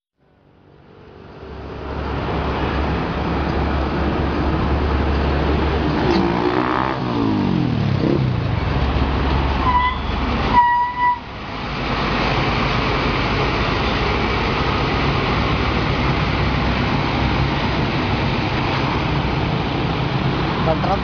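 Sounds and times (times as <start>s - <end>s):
brakes squealing: 8.0s - 21.0s
coach engine running: 8.4s - 21.0s.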